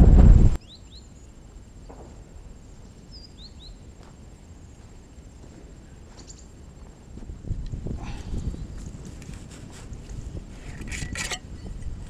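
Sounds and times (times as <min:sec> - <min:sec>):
low wind rumble: 0:00.0 - 0:12.0
bird chirping: 0:00.6 - 0:02.0, 0:02.8 - 0:03.9, 0:05.8 - 0:06.6.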